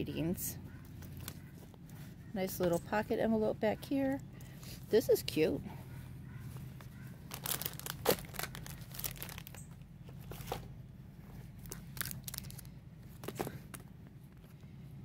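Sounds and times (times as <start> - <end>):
plastic packaging crinkling: 7.2 - 10.6, 11.5 - 13.3.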